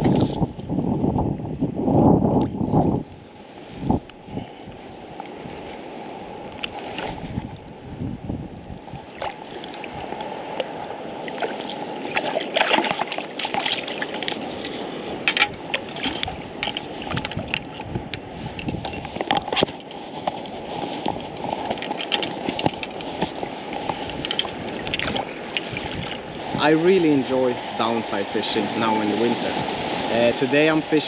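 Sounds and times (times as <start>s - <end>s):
shallow water sloshing: 3.5s - 27.8s
sharp splashes: 9.0s - 17.4s, 24.6s - 26.3s.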